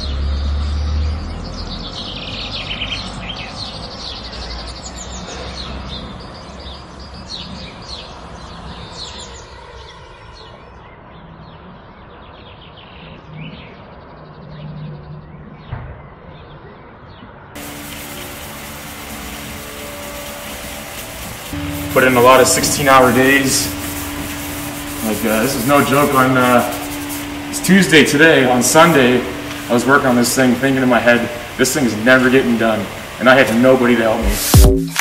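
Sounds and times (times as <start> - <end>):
birds chirping: 0.0 - 34.6
low outdoor rumble: 17.6 - 33.6
mechanical hum with hiss: 17.6 - 34.6.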